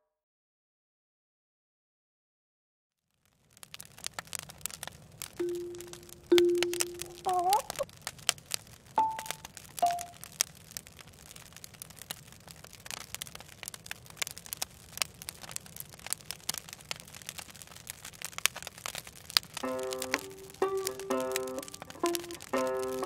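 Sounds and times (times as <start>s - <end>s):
campfire crackling: 3.1s - 23.0s
high squeaks: 6.6s - 7.8s.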